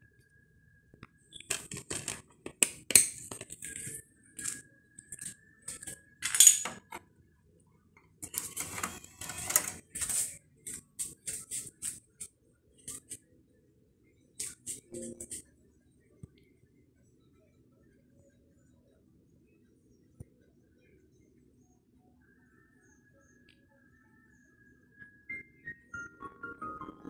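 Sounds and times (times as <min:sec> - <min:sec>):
plastic disc case clicks and rattles: 0:01.5 - 0:03.8
disc sliding into drive: 0:08.2 - 0:09.8.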